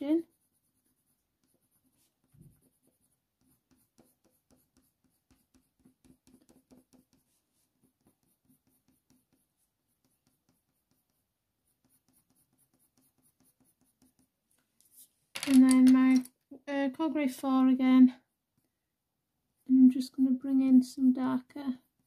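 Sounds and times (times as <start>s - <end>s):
pencil scratching on paper: 0.0s - 15.0s.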